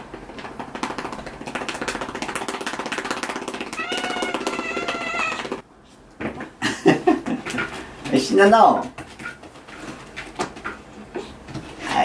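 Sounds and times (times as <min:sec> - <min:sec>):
cat meowing: 0:03.8 - 0:05.6.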